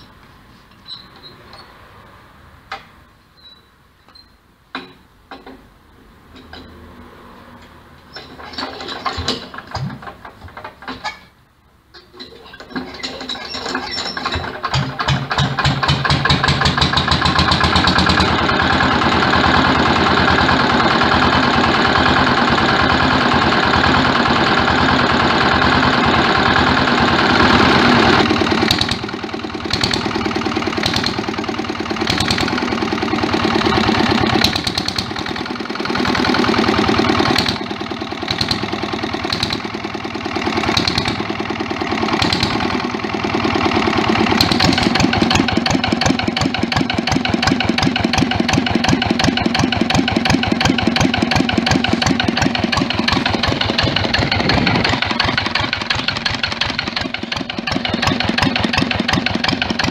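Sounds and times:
stationary engine running: 15.1s - 59.9s
quieter engine: 15.5s - 59.9s
crank clanking: 25.0s - 59.9s.

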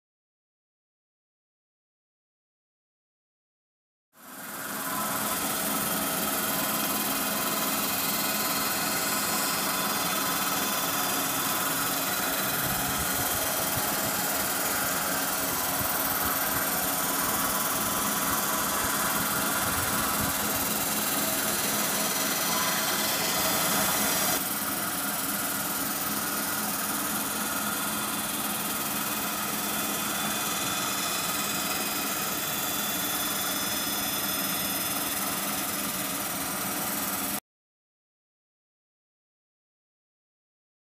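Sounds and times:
grinding wheel hissing on steel: 4.2s - 37.4s
machine hum: 4.4s - 37.3s.

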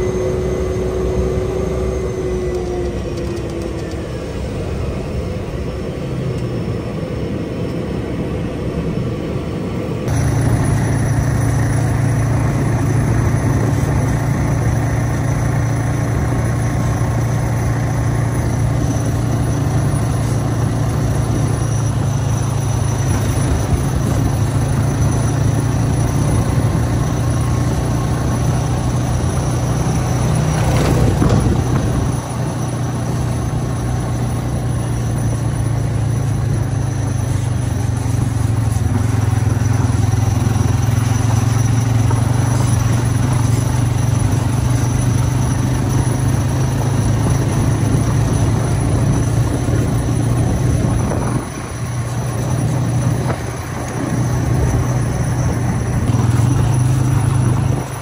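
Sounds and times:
quad bike engine running: 0.0s - 6.6s, 10.0s - 58.0s
aircraft cabin hum: 0.0s - 35.0s.

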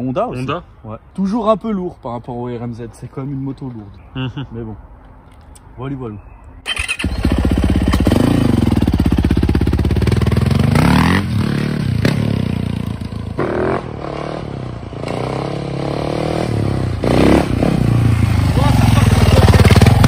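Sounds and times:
dirt bike engine revving: 6.7s - 20.0s.

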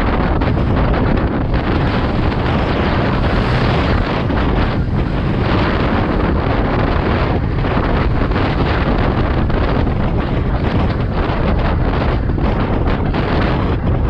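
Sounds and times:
wind blasting microphone: 0.0s - 14.0s.

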